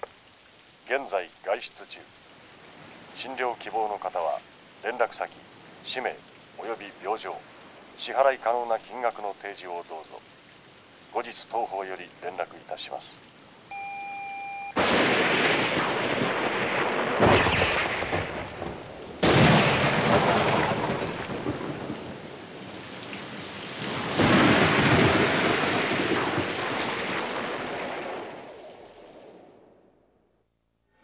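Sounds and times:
heavy rain: 0.0s - 14.0s, 14.7s - 29.7s
thunderclaps rumbling: 14.8s - 29.6s.

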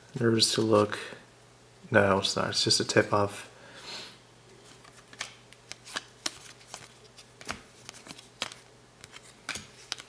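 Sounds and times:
cards snapping: 4.8s - 10.0s.

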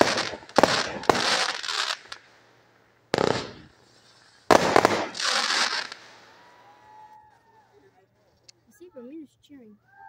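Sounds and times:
fireworks bangs: 0.0s - 7.1s
fireworks crackling: 0.0s - 7.2s.

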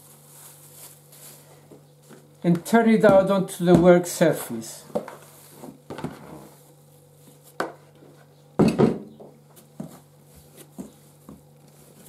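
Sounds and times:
dough handling knocks: 1.7s - 4.1s.

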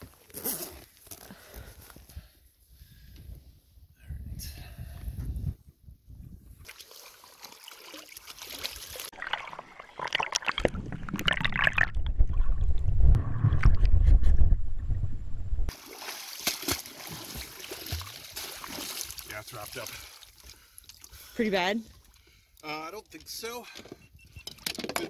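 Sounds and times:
seawater splashing and sloshing: 6.6s - 11.8s, 15.7s - 22.3s
deep muffled underwater rumble: 10.7s - 15.7s
fins kicking water surface: 15.7s - 21.1s.

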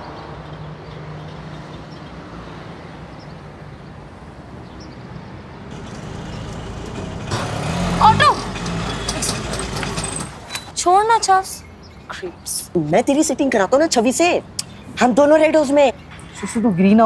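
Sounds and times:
street traffic noise: 0.0s - 17.0s
auto-rickshaw engine rumble: 5.7s - 10.6s.

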